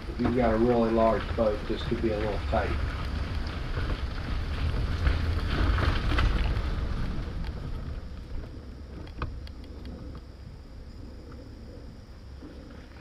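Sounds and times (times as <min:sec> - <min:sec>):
trailer rolling: 0:00.0 - 0:10.2
wind rumbling on microphone: 0:00.0 - 0:13.0.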